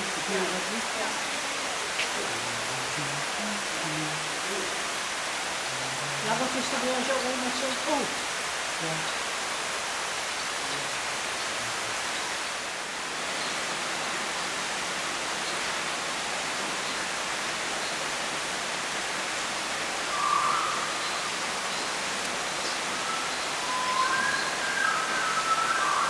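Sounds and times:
whistled notes: 23.0 - 26.0.

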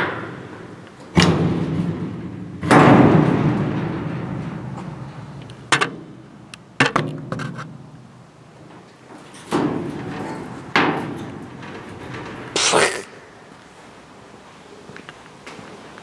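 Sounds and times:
sheet metal clanking: 0.0 - 7.9, 9.1 - 13.4.

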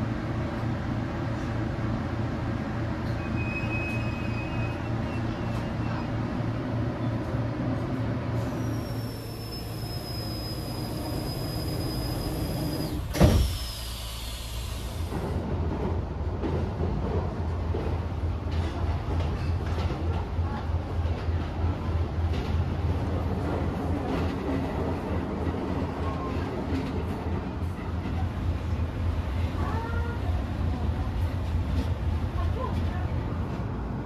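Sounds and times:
train rumbling: 0.0 - 34.0.

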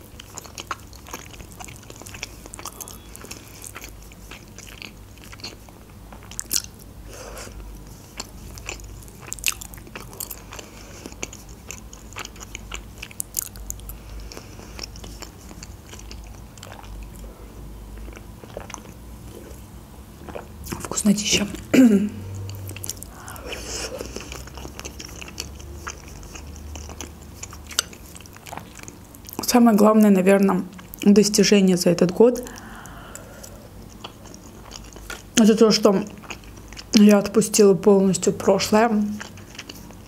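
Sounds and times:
close chewing sounds: 0.0 - 21.7, 22.3 - 40.0.

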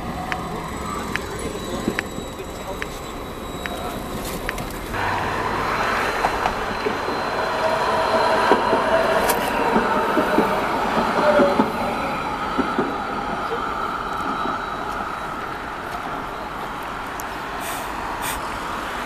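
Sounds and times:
electric tram passing: 0.0 - 19.0
wheels clicking on track: 0.0 - 19.0.

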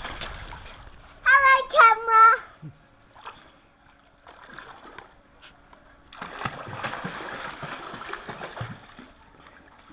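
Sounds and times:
water splashing in swimming pool: 0.0 - 0.8, 3.0 - 5.4, 6.0 - 9.9
small laps and drips: 0.0 - 1.2, 2.7 - 9.9.

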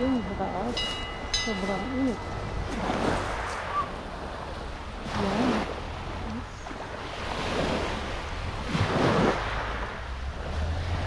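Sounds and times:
wind rumbling on microphone: 0.0 - 11.0
waves washing onto pebbles: 1.6 - 11.0.

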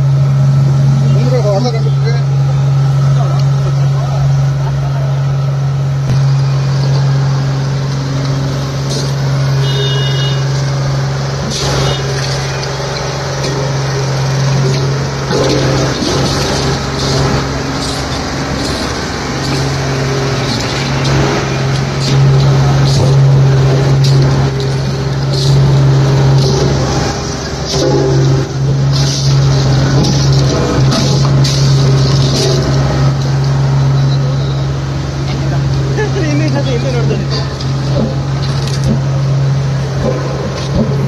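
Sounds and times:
diesel engine idling: 0.0 - 41.0
scattered knocks: 37.3 - 39.2.

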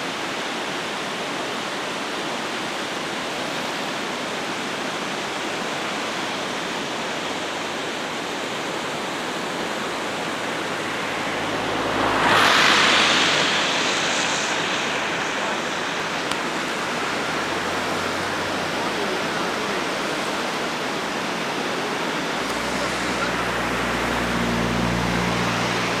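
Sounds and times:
flooded river rushing: 0.0 - 26.0
loud whoosh: 9.1 - 26.0
low vehicle engine hum: 9.3 - 26.0.

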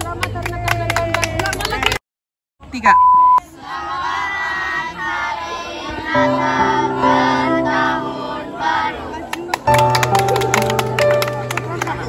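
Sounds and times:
test-tone beep: 2.8 - 3.4
children and women singing: 3.5 - 9.2
musical accompaniment: 6.2 - 12.0.

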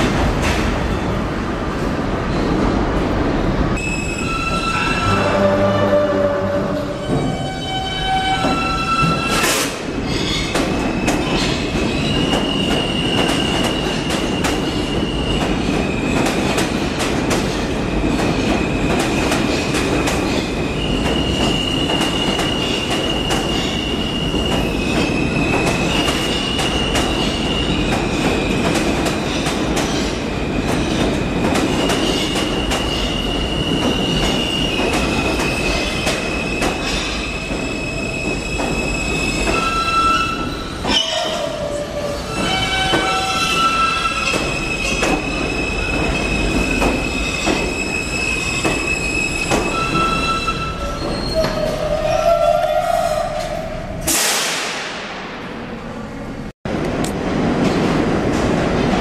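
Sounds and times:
train rumbling into station: 0.0 - 59.0.

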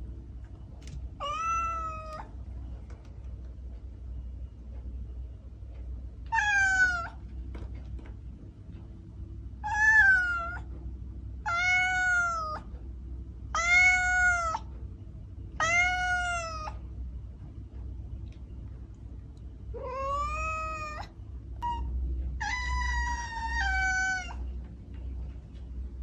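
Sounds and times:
cat meowing: 1.2 - 2.3, 6.3 - 7.2, 9.6 - 10.7, 11.4 - 12.7, 13.5 - 14.7, 15.6 - 16.8, 19.7 - 24.5.

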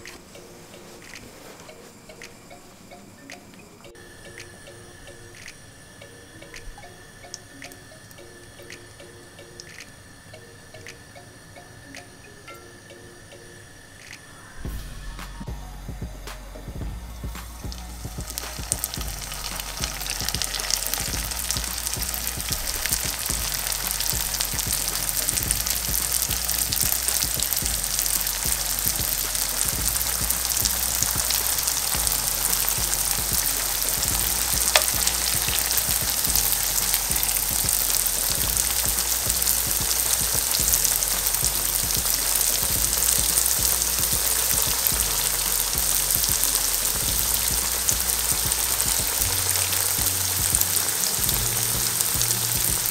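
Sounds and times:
dough sizzling in hot oil: 17.9 - 52.9.

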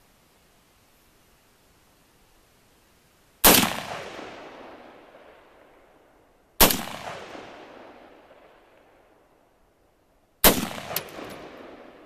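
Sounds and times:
rifle shots with rolling echo: 3.4 - 9.6, 10.4 - 12.0.

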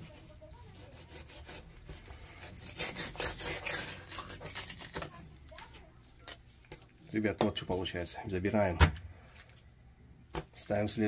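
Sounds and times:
knife scraping fish skin: 0.1 - 5.1.

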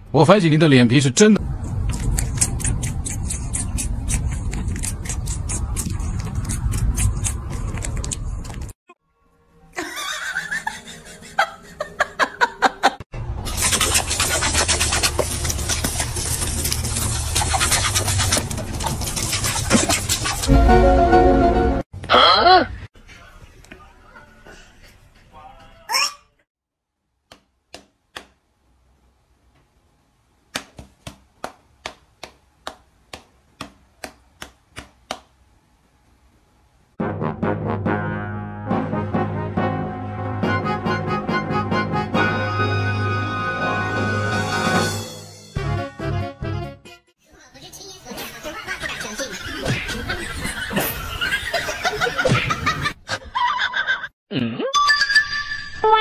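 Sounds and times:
person laughing: 9.8 - 13.0.

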